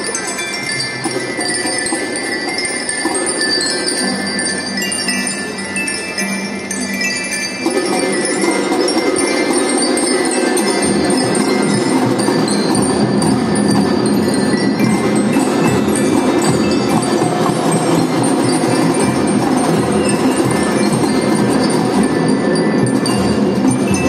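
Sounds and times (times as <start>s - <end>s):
glockenspiel melody: 0.0s - 24.0s
snare and bass drums: 10.6s - 24.0s.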